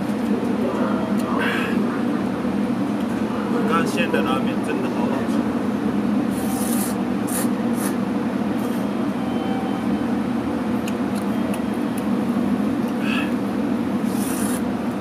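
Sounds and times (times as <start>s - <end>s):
low mechanical hum: 0.0s - 15.0s
noodles slurped: 14.0s - 14.7s.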